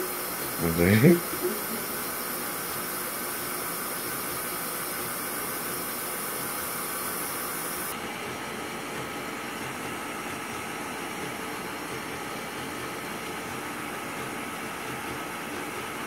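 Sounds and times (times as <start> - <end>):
stand mixer motor running: 0.0 - 8.2.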